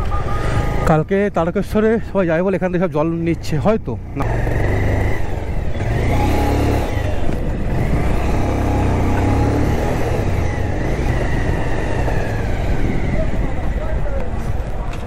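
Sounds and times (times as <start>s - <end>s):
motorcycle engine rumble: 0.0s - 15.0s
wind noise: 5.1s - 15.0s.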